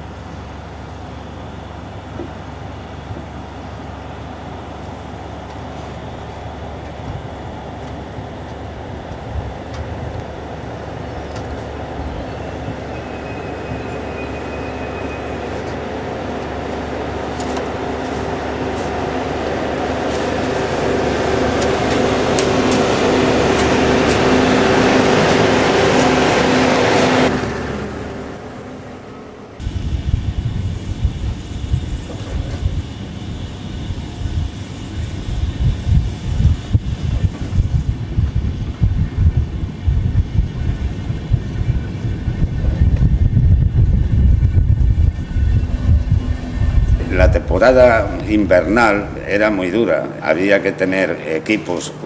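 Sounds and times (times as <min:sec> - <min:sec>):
train rumble and hum: 0:00.0 - 0:52.0
train clicks: 0:07.8 - 0:11.8, 0:15.4 - 0:19.2, 0:21.3 - 0:27.6.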